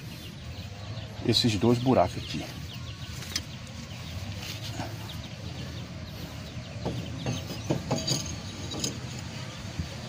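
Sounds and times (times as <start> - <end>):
light metallic knocks: 6.8 - 9.3.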